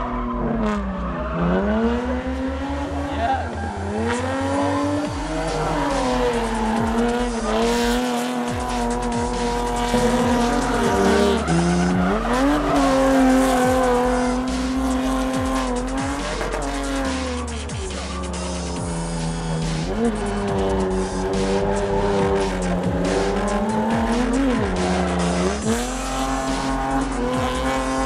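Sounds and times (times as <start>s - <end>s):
car engine revving high: 0.0s - 28.0s
tires squealing: 0.0s - 28.0s.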